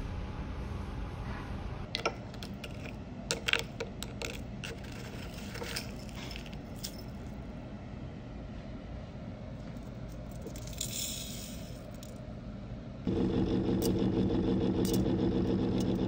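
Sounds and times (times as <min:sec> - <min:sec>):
low steady hum: 0:00.0 - 0:16.0
scoop scraping sugar crystals: 0:04.6 - 0:06.6.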